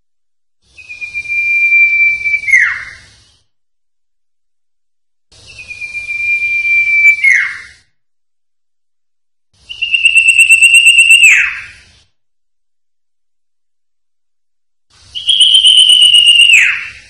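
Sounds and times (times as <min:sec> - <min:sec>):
bird whistling: 0:00.7 - 0:03.2, 0:05.5 - 0:07.9, 0:09.6 - 0:11.9, 0:15.0 - 0:17.0.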